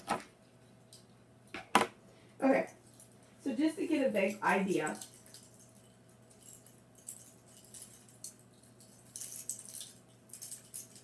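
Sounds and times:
plastic clothespins clicking and rattling: 6.3 - 11.0.

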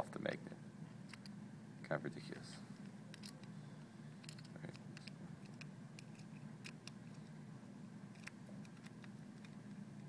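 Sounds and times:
steady low hum: 0.0 - 10.0
screwdriver ticks and scrapes: 4.2 - 7.2, 8.1 - 9.8.

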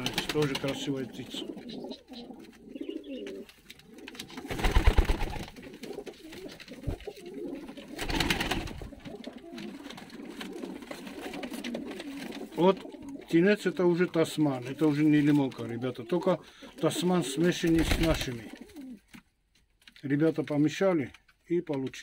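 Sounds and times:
pigeons cooing: 0.0 - 14.0, 14.6 - 19.0
rustling bursts: 3.4 - 13.1.

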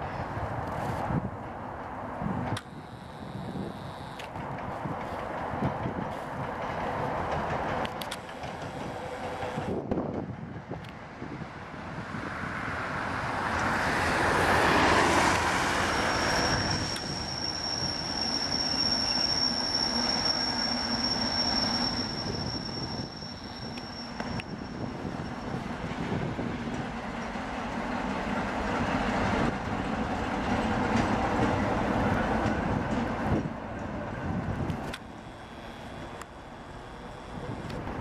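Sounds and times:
diesel locomotive passing: 0.0 - 38.0
high wheel squeal: 15.6 - 25.9.

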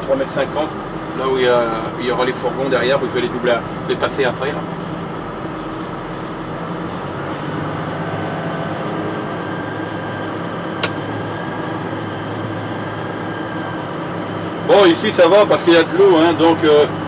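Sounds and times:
vehicle engine running: 0.0 - 17.0
sharp click: 10.8 - 11.0.

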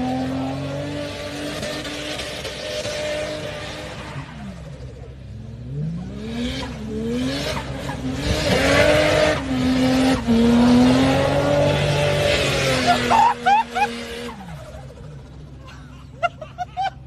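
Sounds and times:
engine revving hard: 5.6 - 14.8.

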